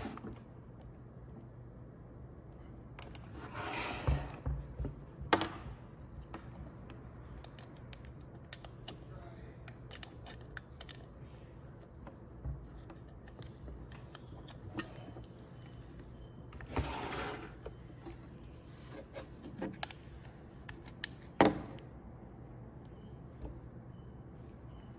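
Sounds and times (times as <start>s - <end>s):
faint steady hum: 0.0s - 24.9s.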